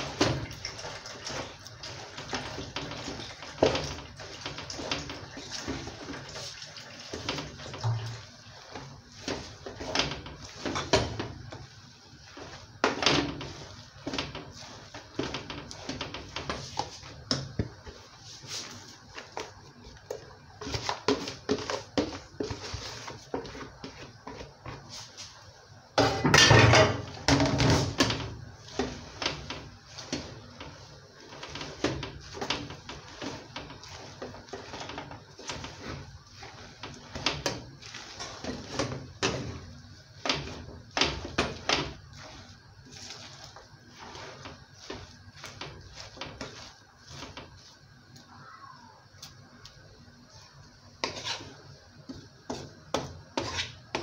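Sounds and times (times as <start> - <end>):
wooden spoon scraping a metal pot: 0.0 - 19.5, 26.3 - 47.9, 51.0 - 54.0
leaves rustling in a pot: 20.6 - 25.5, 27.8 - 51.8.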